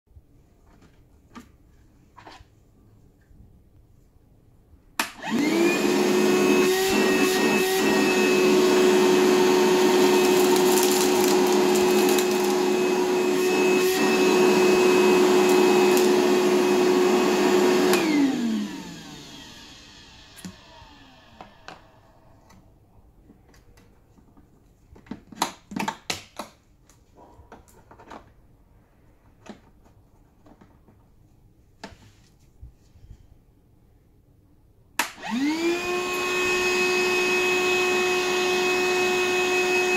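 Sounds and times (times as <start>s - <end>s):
vacuum motor whining: 5.2s - 22.1s, 35.1s - 39.9s.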